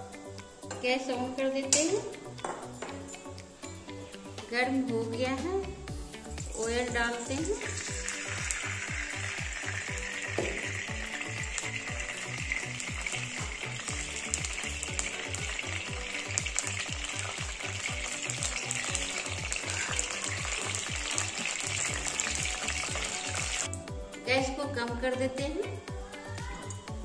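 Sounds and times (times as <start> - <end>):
background music with beat: 0.0 - 27.0
oil sizzling and bubbling: 5.9 - 23.9.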